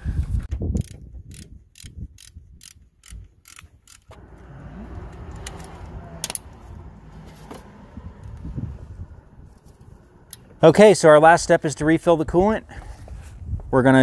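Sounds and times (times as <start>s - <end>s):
ratchet wrench clicking: 0.8s - 4.2s, 6.2s - 6.5s.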